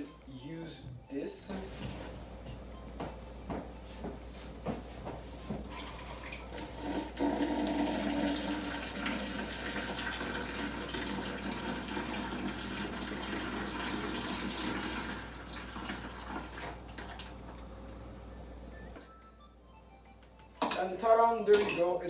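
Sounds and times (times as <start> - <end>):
smoothie pouring into pitcher: 5.7 - 17.3.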